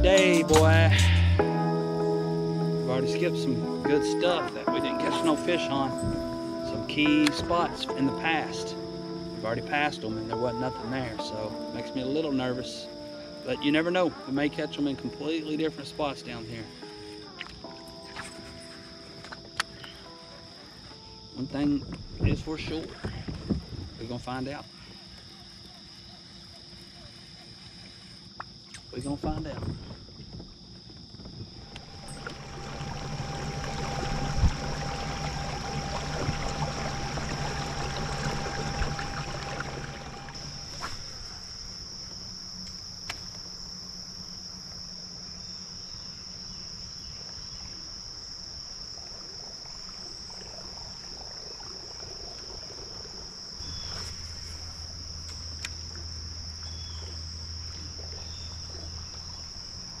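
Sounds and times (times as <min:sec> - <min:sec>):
insects droning: 0:00.0 - 1:00.0
rushing noise with low hum: 0:31.3 - 0:40.9.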